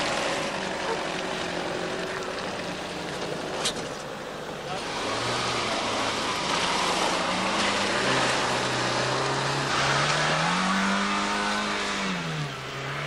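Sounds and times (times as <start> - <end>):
off-road vehicle engine revving: 0.0 - 13.0.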